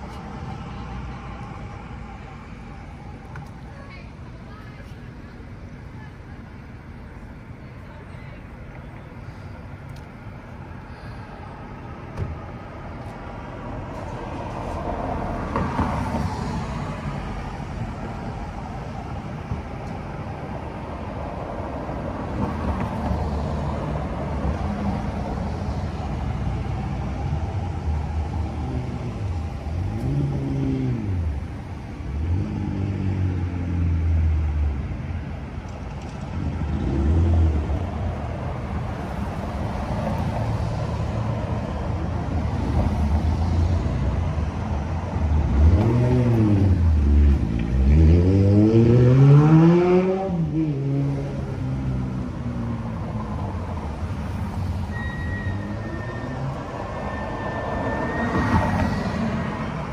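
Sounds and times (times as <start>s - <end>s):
cars passing on road: 0.0s - 59.9s
engines revving as vehicles pull away: 21.9s - 59.9s.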